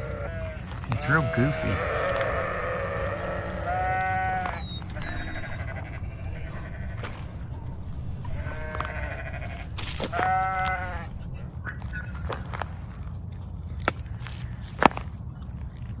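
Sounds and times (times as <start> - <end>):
short pitched animal calls: 0.0 - 11.1.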